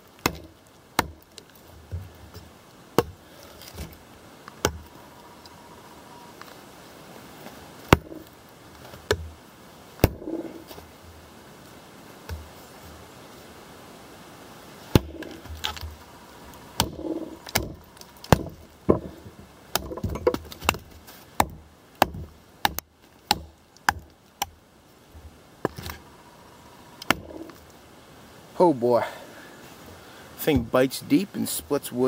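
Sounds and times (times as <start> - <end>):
chopper striking a log: 0.2 - 1.2, 7.9 - 8.3, 10.0 - 10.7, 14.9 - 16.0, 16.8 - 24.1, 27.0 - 27.5.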